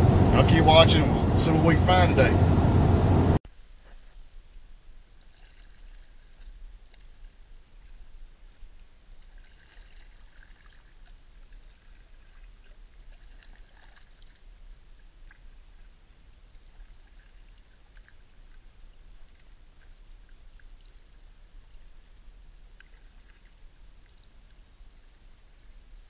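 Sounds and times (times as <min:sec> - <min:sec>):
low steady rumble: 0:00.0 - 0:26.0
paddle splashing in water: 0:03.7 - 0:26.0
small ticks: 0:16.8 - 0:25.3.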